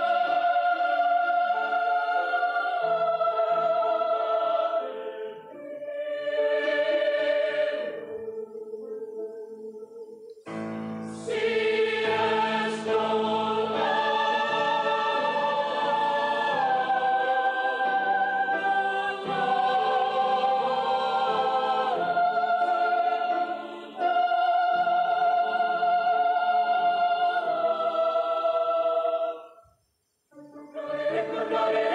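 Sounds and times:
choir singing in harmony: 0:00.0 - 0:29.6, 0:30.4 - 0:31.9.

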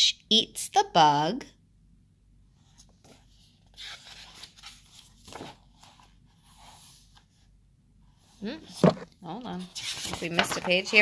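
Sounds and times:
paper pages rustling: 0:02.7 - 0:07.3, 0:08.8 - 0:11.0.

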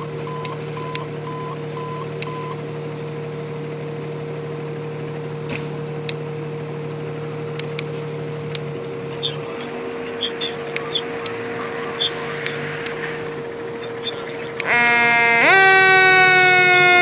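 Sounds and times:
diesel engine idling: 0:00.0 - 0:17.0
sharp clicks: 0:10.4 - 0:11.4.

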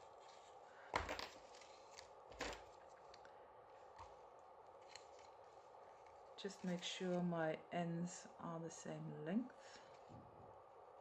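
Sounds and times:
foil paper ornament rustling: 0:00.0 - 0:07.3.

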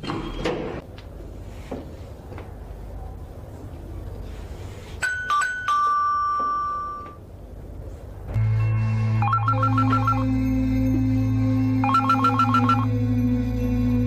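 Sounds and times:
low steady musical drone: 0:08.3 - 0:14.0
two-tone doorbell chime: 0:11.8 - 0:12.9.

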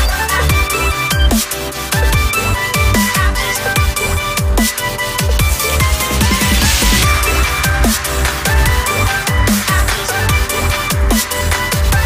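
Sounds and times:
electronic music with fast beat: 0:00.0 - 0:12.0
falling bass notes: 0:05.3 - 0:12.0.

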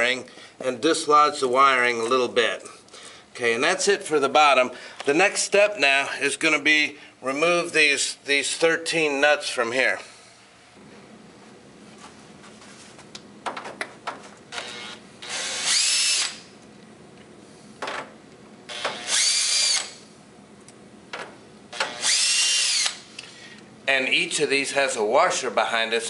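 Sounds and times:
electric drill whirring: 0:14.5 - 0:16.5, 0:18.7 - 0:20.0, 0:21.7 - 0:23.1.

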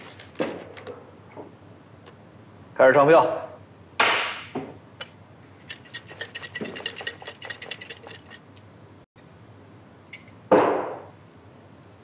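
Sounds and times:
paper rustle: 0:00.0 - 0:00.9
paper ballots rattling in container: 0:05.6 - 0:08.4.

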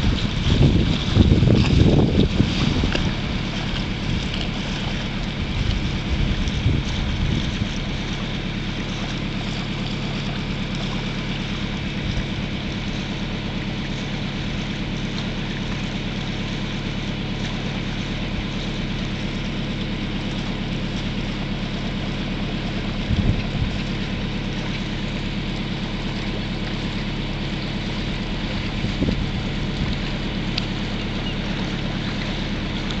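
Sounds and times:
low bumps: 0:00.0 - 0:07.9
boat engine running: 0:00.0 - 0:33.0
water noise: 0:00.0 - 0:33.0.

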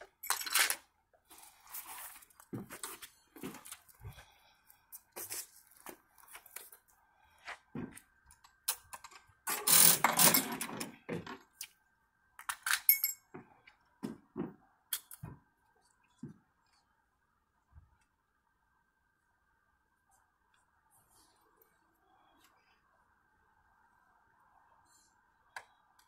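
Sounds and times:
metal hooks and buckles rattling: 0:00.2 - 0:00.8.

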